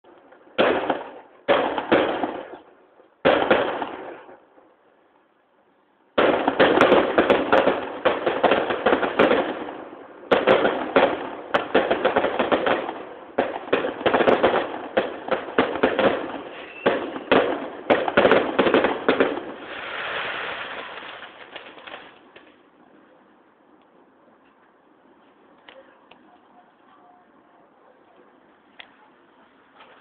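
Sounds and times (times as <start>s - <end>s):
fireworks bangs and crackles: 0.0s - 4.8s, 6.1s - 23.1s
fireworks fizzing hiss: 10.6s - 22.6s.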